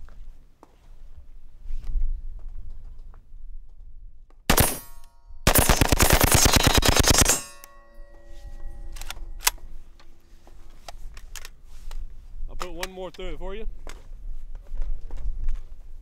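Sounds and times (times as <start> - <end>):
rifle firing bursts: 4.5 - 7.6
metallic ringing: 4.6 - 5.5, 6.3 - 10.6.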